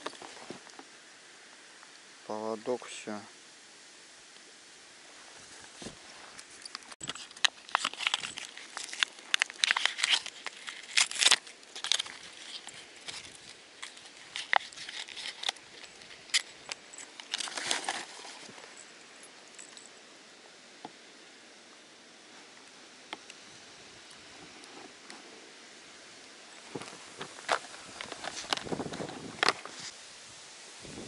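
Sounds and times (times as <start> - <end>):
crinkling and rustling: 0.0 - 0.9, 5.1 - 19.9, 26.5 - 30.0.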